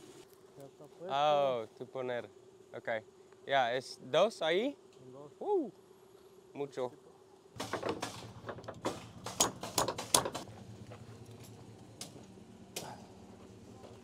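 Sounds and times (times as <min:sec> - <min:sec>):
steady low hum: 0:00.0 - 0:14.0
wooden boards knocking together: 0:07.6 - 0:10.4.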